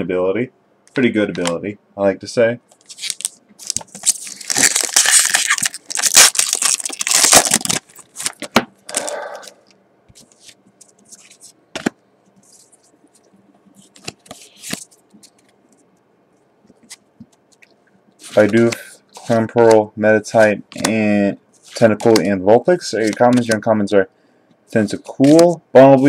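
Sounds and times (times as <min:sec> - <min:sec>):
foil wrapper tearing and crinkling: 0:02.9 - 0:09.2
cards clicking and rustling: 0:13.8 - 0:15.6, 0:21.7 - 0:23.7.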